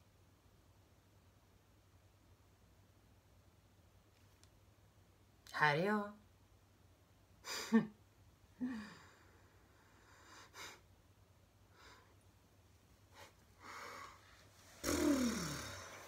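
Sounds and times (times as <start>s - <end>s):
woman sighing and breathing: 8.6s - 9.6s, 13.2s - 16.0s
woman groaning: 14.8s - 16.0s.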